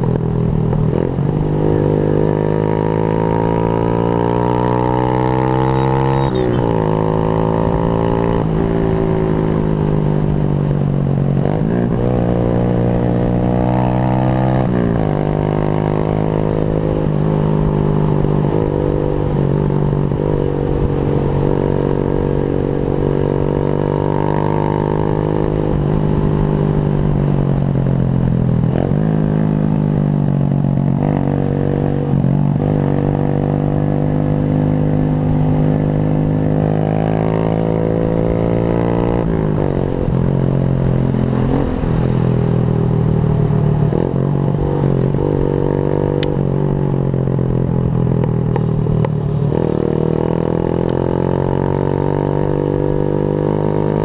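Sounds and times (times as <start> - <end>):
motorcycle engine shifting gears: 0.0 - 54.0.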